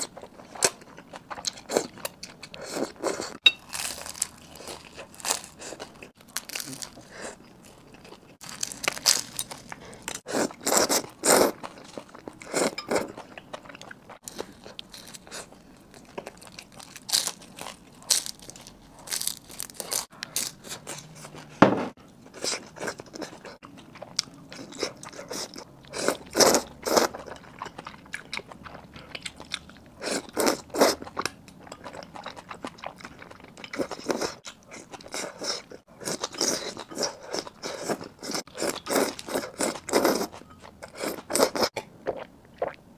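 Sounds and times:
chewing and crunching bread: 0.0 - 42.9.

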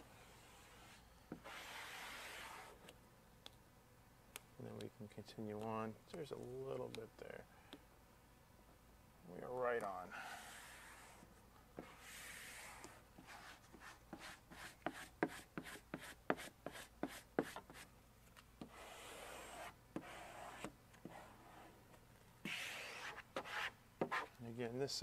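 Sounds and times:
squeegee rubbing vinyl: 0.3 - 2.9, 10.1 - 17.8, 18.6 - 21.8, 22.4 - 24.3.

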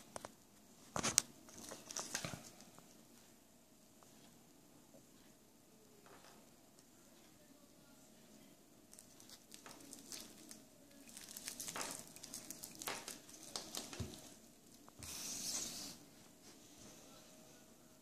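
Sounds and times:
plastic film crinkling: 0.9 - 2.6, 8.9 - 14.8.

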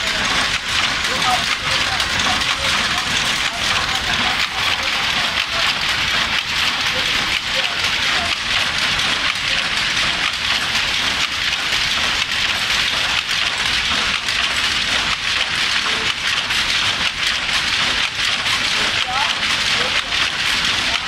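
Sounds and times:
power loom clattering: 0.0 - 21.0.

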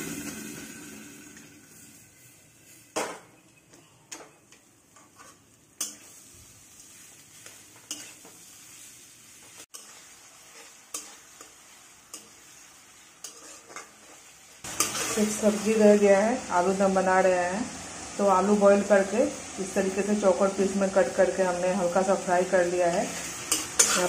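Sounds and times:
faint sizzle: 0.0 - 24.0
steel spatula scraping a pan: 4.9 - 6.3, 6.9 - 15.8, 22.8 - 24.0.

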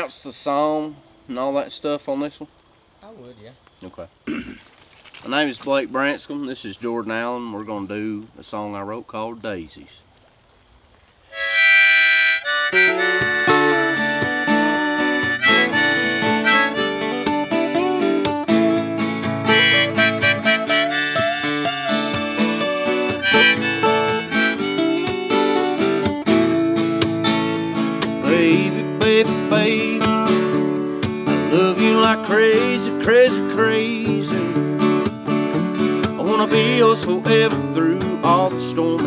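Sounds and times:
harmonica melody: 11.3 - 33.6
acoustic guitars: 11.3 - 39.0.

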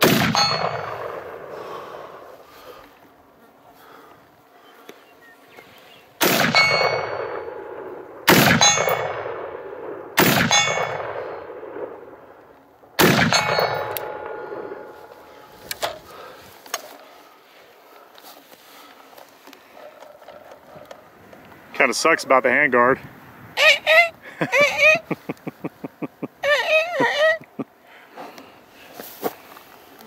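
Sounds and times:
rifle shots: 0.0 - 2.3, 6.2 - 12.4, 13.0 - 16.0
metallic clanging ring: 0.2 - 1.2, 6.4 - 9.6, 10.2 - 12.0, 13.1 - 16.1.

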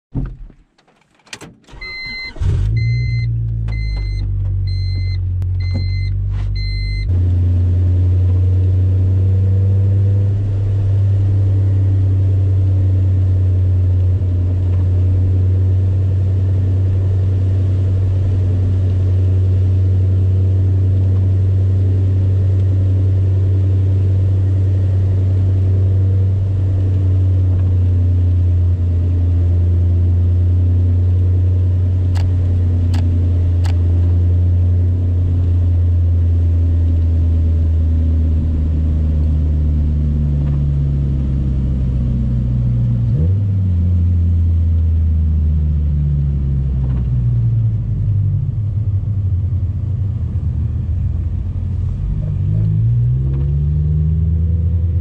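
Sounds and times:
car engine starting and running: 0.1 - 55.0
dashboard chime beeping: 1.8 - 7.1.

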